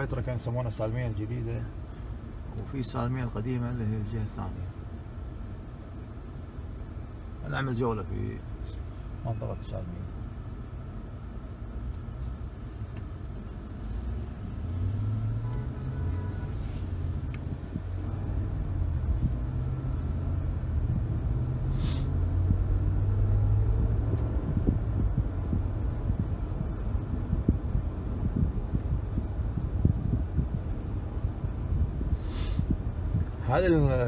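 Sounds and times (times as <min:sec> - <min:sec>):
car engine and road noise: 0:00.0 - 0:34.0
short hiss: 0:21.7 - 0:22.2, 0:32.2 - 0:32.8.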